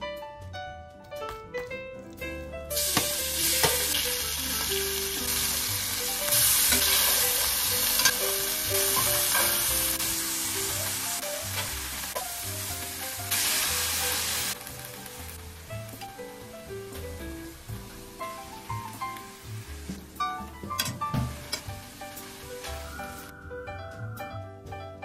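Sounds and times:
pork sizzling in a skillet: 2.7 - 20.1, 21.0 - 23.3.

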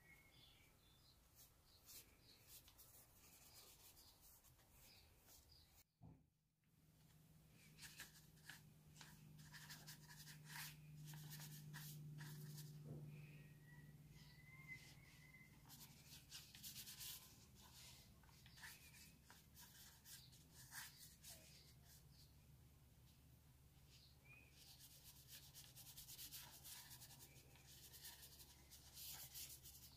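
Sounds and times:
paintbrush scratching on paper: 1.4 - 5.5, 7.7 - 12.7, 15.0 - 22.0, 24.6 - 29.9.

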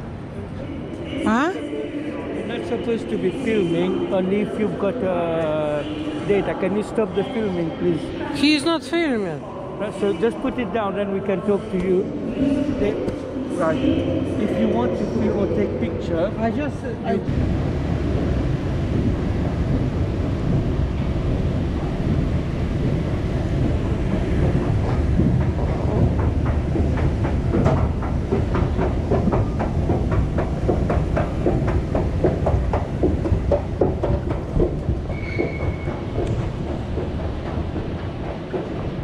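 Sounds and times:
escalator rumble: 12.3 - 39.0
escalator steps clicking: 18.1 - 39.0.

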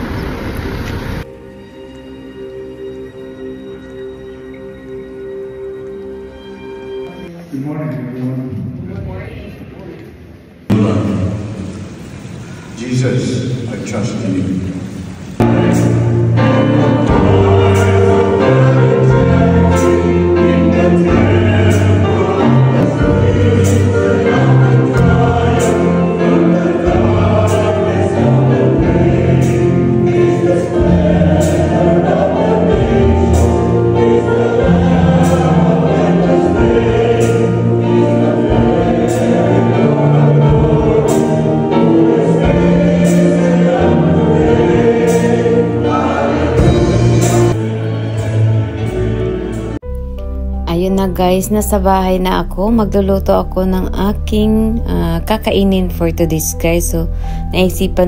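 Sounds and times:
choir singing gospel song: 15.4 - 49.8.

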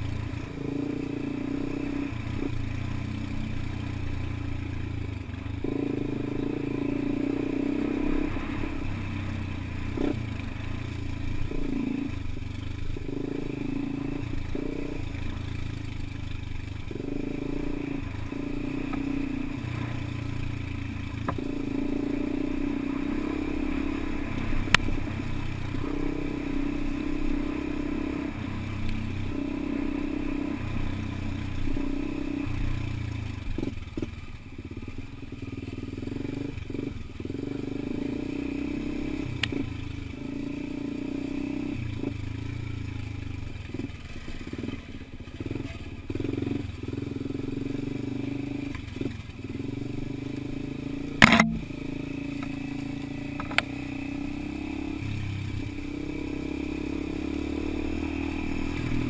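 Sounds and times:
dirt bike engine revving: 0.0 - 34.1, 35.5 - 59.0
sharp knocks: 51.2 - 51.7.

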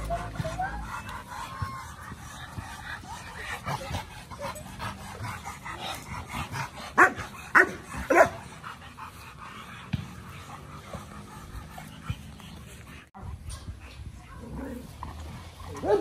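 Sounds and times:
scattered dog sounds: 0.0 - 16.0
big dog barking: 6.9 - 8.4, 15.7 - 16.0.

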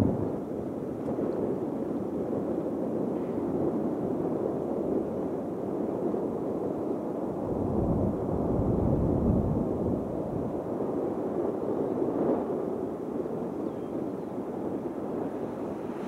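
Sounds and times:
jet engines rumbling: 14.2 - 16.0.

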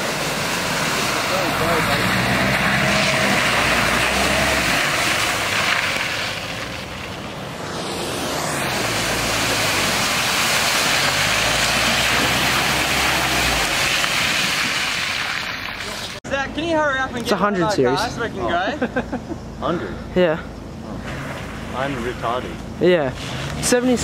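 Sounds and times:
tyres splashing through mud: 0.0 - 7.5, 8.9 - 16.2, 21.0 - 24.0
engines running under load: 0.0 - 24.0.

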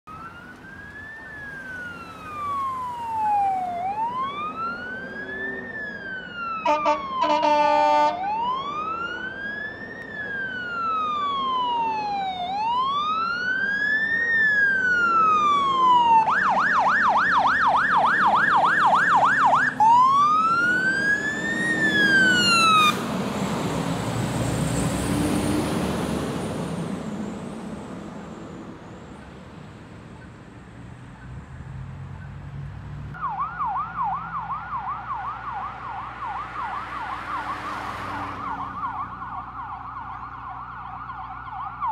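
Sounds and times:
fire engine siren wailing: 0.0 - 29.3, 33.1 - 41.9
faint siren yelping: 0.1 - 23.0, 33.2 - 41.9
engine and tyre noise passing: 0.1 - 41.9.

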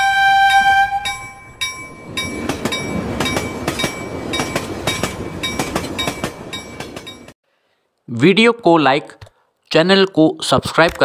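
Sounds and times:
train passing at speed: 0.0 - 7.4
chime ringing: 0.5 - 7.3
wheels clattering over rail joints: 1.1 - 7.4.

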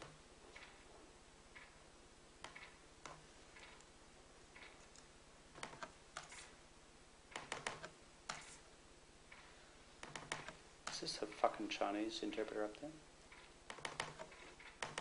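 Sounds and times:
room hiss: 0.0 - 15.0
small clicks and ticks: 2.4 - 3.9, 4.6 - 6.3, 12.7 - 15.0.

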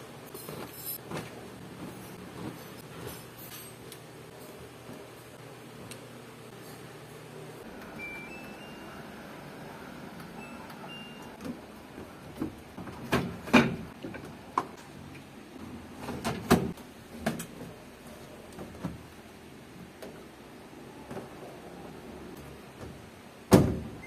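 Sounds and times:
short electronic beeps: 8.0 - 9.0.

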